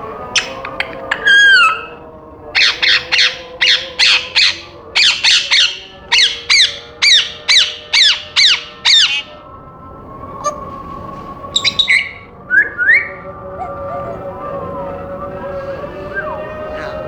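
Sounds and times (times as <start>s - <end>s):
parrot squawking: 0.3s - 2.0s, 2.6s - 9.4s, 11.5s - 14.3s.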